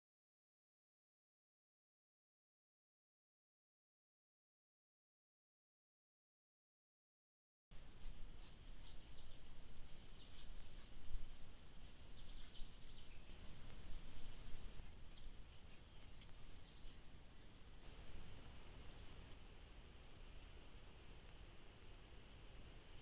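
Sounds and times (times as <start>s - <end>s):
birds chirping and whistling: 7.8s - 19.4s.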